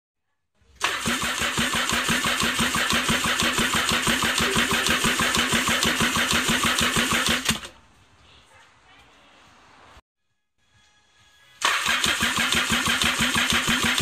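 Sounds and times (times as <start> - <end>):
starter cranking engine: 0.8 - 7.8, 11.6 - 14.0.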